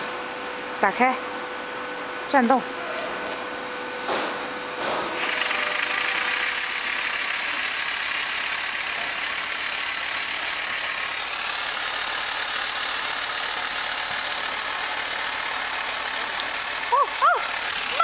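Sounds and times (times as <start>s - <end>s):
pneumatic air motor running: 4.9s - 18.0s.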